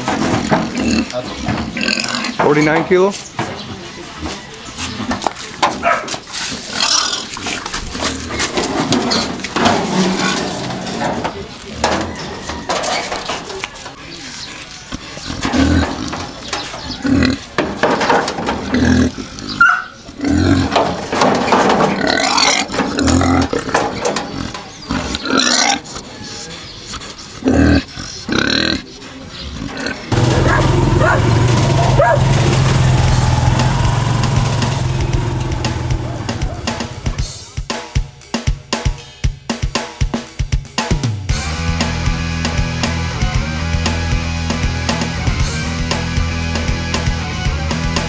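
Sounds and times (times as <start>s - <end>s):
pig squealing and grunting: 0.4s - 2.4s, 6.6s - 11.1s, 14.3s - 17.6s, 18.6s - 20.9s, 21.9s - 26.5s, 27.2s - 37.2s
music with regular beat: 36.0s - 48.0s.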